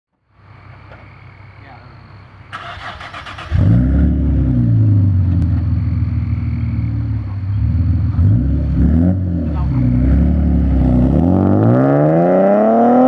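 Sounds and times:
car engine revving then idling: 0:02.5 - 0:13.0.

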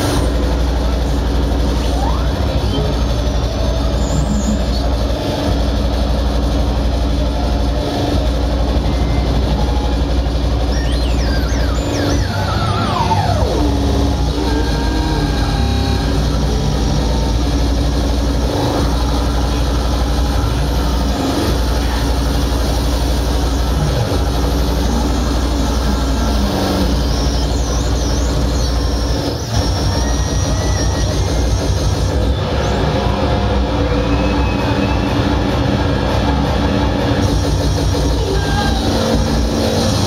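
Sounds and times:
harsh noise music: 0:00.0 - 0:40.0
low drone: 0:00.0 - 0:40.0
warbling high tone: 0:08.6 - 0:40.0
squealing sliding tones: 0:08.8 - 0:40.0.

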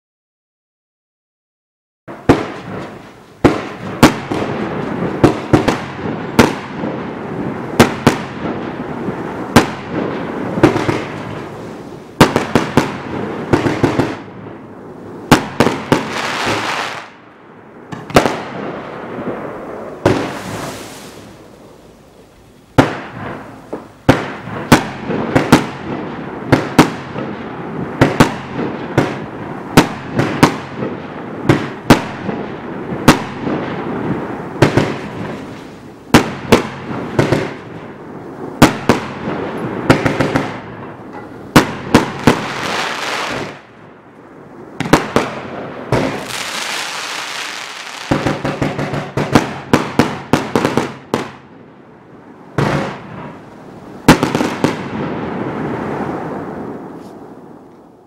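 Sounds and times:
crackling fireworks stars: 0:02.1 - 0:58.0
fireworks bangs: 0:02.1 - 0:58.0.

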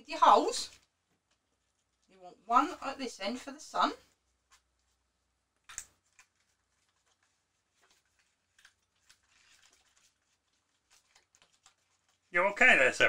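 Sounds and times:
paper card rustling and tapping: 0:05.6 - 0:12.3.

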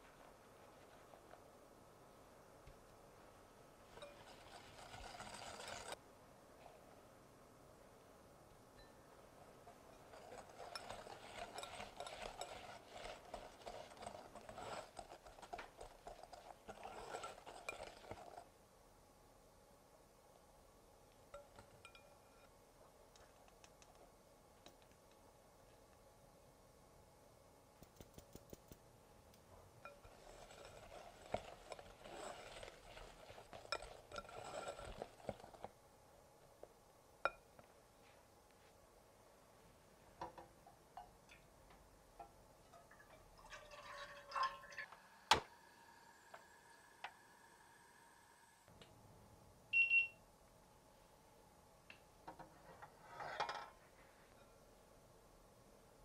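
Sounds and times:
whisk scraping glass bowl: 0:03.9 - 0:06.0, 0:09.6 - 0:18.5, 0:29.8 - 0:35.7
kitchenware rustling: 0:09.5 - 0:18.4, 0:29.8 - 0:35.7
appliance beep: 0:49.7 - 0:50.2.

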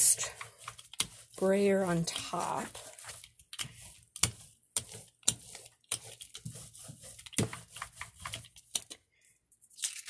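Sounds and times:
hand rubbing paper: 0:00.0 - 0:08.6.

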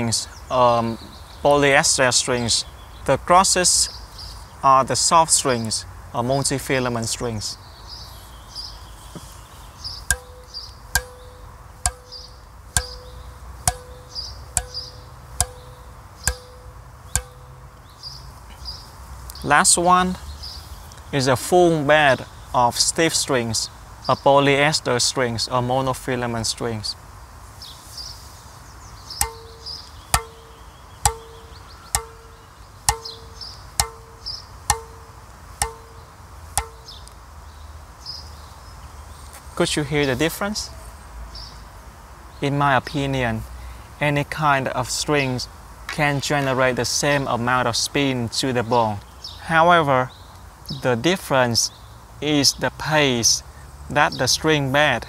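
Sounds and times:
racquet strings struck ringing: 0:10.1 - 0:17.8, 0:29.2 - 0:36.0, 0:36.6 - 0:37.0.

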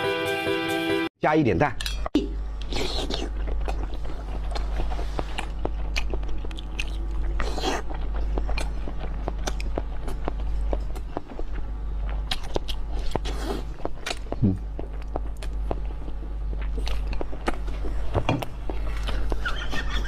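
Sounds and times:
steady low hum: 0:01.5 - 0:20.0
wet chewing with mouth clicks: 0:02.6 - 0:20.0.

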